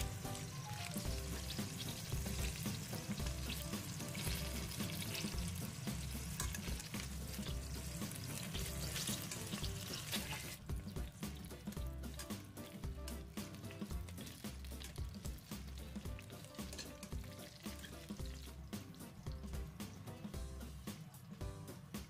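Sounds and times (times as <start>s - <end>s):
background music: 0.0s - 22.0s
meat sizzling in a pot: 0.0s - 22.0s
metal tongs: 6.2s - 7.6s, 16.5s - 18.1s.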